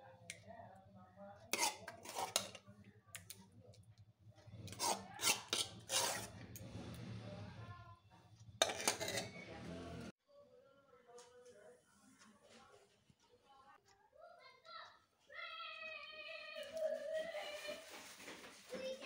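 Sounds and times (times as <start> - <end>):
spoon scraping a plate: 1.5 - 2.6, 4.5 - 7.3, 8.6 - 10.0.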